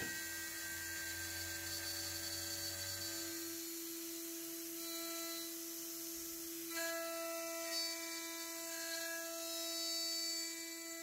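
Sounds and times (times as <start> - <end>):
cnc spindle whine: 0.0 - 11.0.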